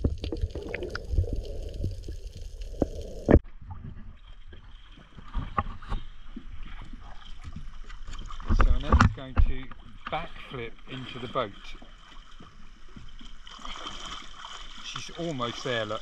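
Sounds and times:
underwater clicks: 0.0 - 3.4, 5.3 - 10.3
muffled underwater rumble: 0.0 - 13.4
water lapping and splashing: 0.0 - 16.0.

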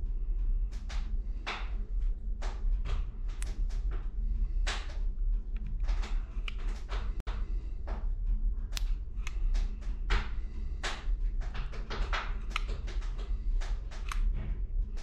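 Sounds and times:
low electrical hum: 0.0 - 15.0
sharp click: 14.0 - 14.3.

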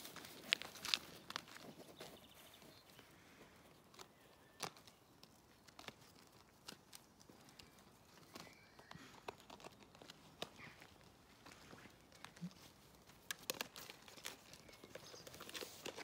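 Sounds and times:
puppy scampering over gravel: 0.0 - 2.8.

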